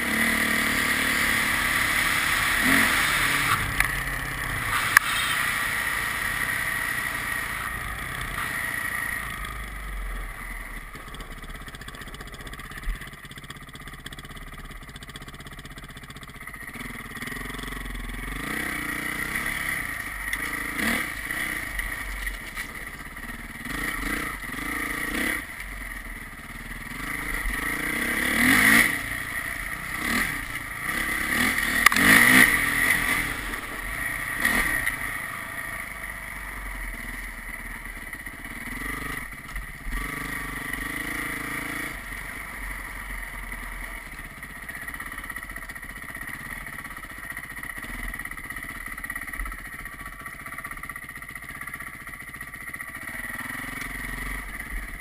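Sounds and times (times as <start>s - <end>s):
vehicle engine revving: 0.0s - 13.1s, 16.7s - 25.8s, 26.4s - 37.3s, 38.2s - 43.2s
road and wind noise: 0.0s - 14.0s, 16.4s - 46.4s.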